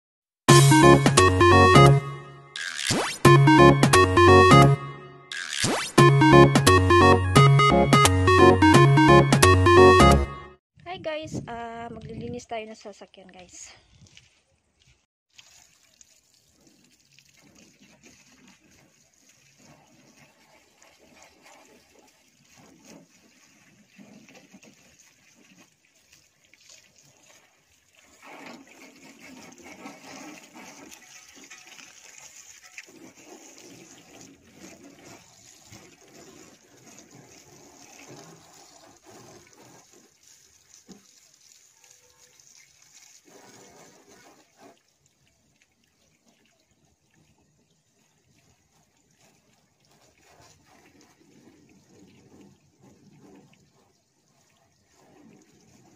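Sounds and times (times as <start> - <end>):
hose spraying water on a car: 15.3 - 46.3, 47.9 - 55.9
water splashing: 15.3 - 55.9.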